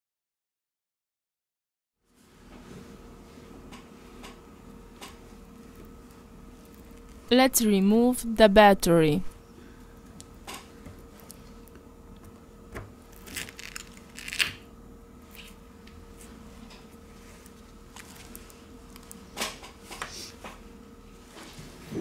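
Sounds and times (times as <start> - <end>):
battery adhesive crackling and tearing: 13.2 - 14.6.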